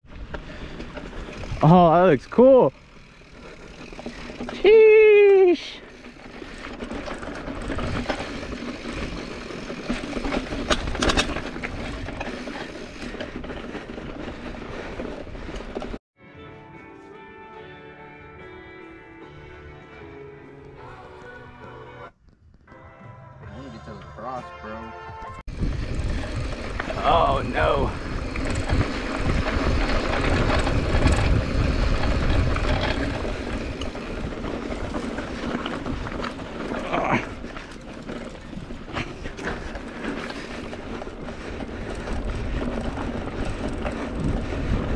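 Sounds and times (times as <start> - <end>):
bike rattling and clicking: 0.0 - 16.0, 25.5 - 44.9
bike tyres crunching on gravel: 0.1 - 16.0, 25.5 - 44.9
wind buffeting microphone: 25.5 - 36.3, 40.4 - 44.9.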